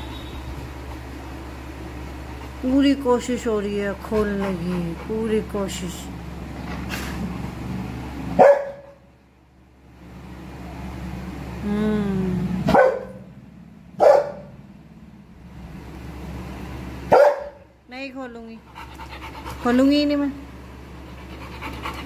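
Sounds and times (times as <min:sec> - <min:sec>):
dog barking: 0:08.4 - 0:09.0, 0:12.7 - 0:13.3, 0:14.0 - 0:14.6, 0:17.1 - 0:17.7.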